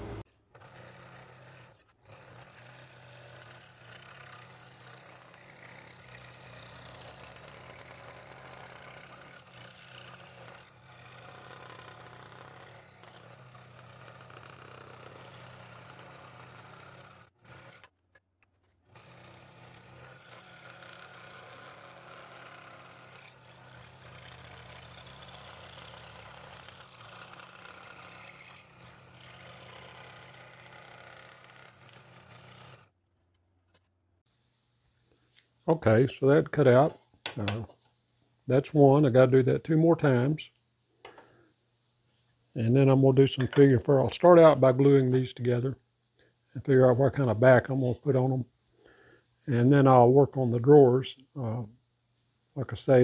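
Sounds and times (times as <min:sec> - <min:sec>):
scroll saw cutting wood: 0:00.0 - 0:33.9, 0:36.6 - 0:37.6.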